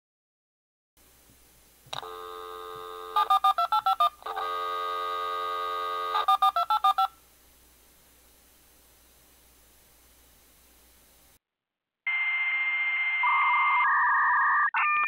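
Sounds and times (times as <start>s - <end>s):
dial tone: 2.0s - 7.0s
touch-tone digits dialing: 2.0s - 7.1s.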